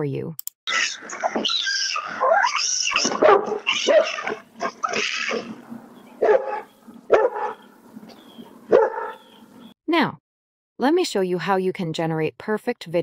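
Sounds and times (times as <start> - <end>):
dog barking: 3.0 - 5.5, 6.2 - 7.7, 8.7 - 9.4.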